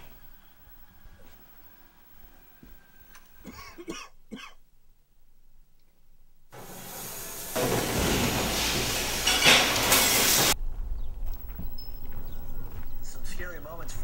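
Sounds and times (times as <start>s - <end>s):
cooler fans rushing: 6.6s - 10.6s.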